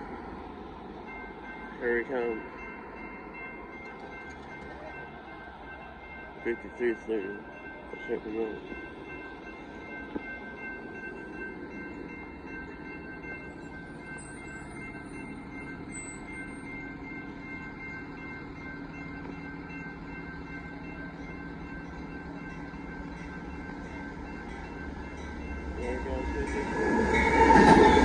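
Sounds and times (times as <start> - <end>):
crossing warning bell ringing: 0.0 - 28.0.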